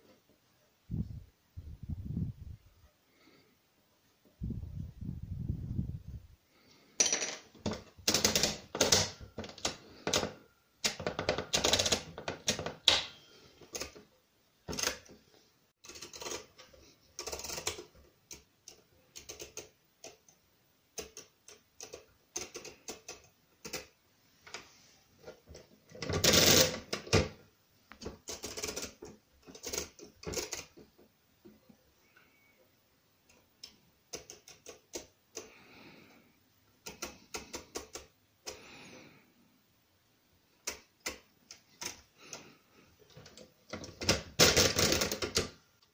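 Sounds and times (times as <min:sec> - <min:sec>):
ratcheting rattles: 0:17.2 - 0:17.9, 0:28.2 - 0:30.8
mechanical calculator clicks: 0:17.2 - 0:20.2, 0:28.2 - 0:30.7.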